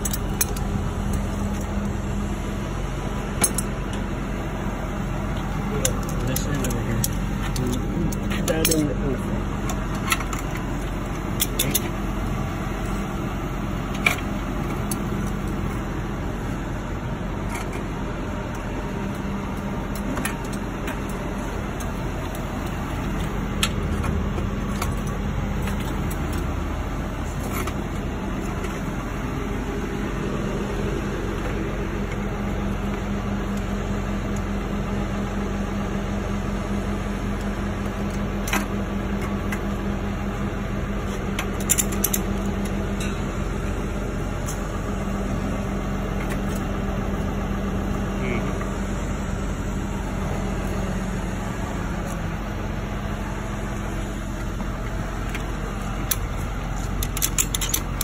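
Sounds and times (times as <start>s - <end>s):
truck engine idling: 0.0s - 58.0s
sharp metallic clicks: 5.3s - 9.0s, 54.8s - 58.0s.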